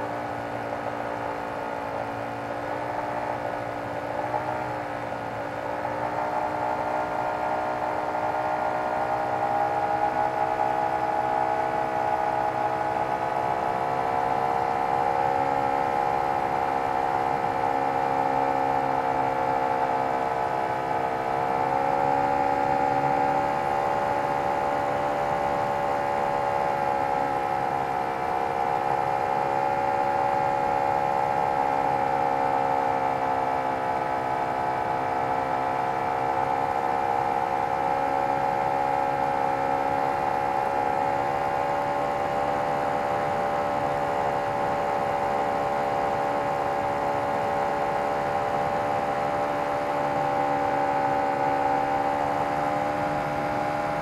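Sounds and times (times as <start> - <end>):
model airplane engine running: 0.6 - 54.0.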